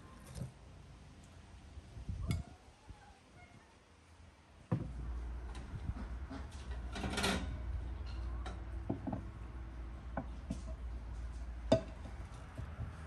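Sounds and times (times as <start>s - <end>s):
dishes set down on wooden table: 11.7s - 12.0s.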